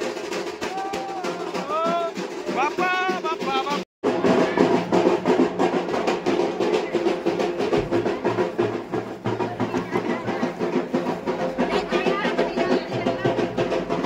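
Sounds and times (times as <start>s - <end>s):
fast dense drumming: 0.0s - 14.0s.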